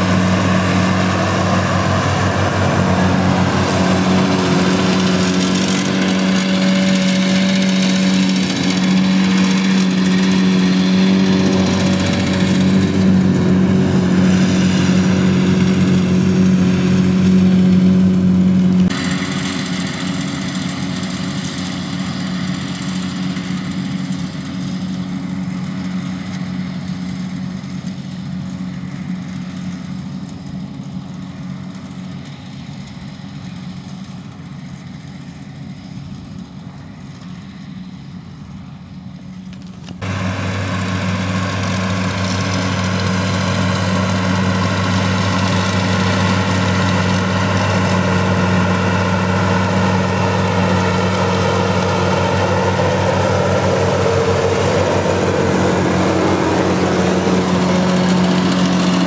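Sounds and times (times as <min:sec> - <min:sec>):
tractor diesel engines running: 0:00.0 - 0:59.0.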